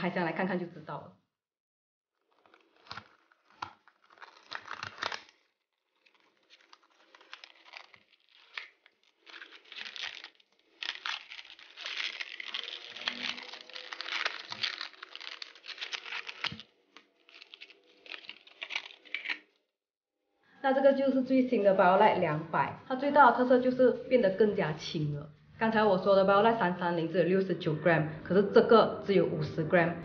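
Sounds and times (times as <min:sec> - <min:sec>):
packaging crinkling and tearing: 0:02.2 - 0:19.6.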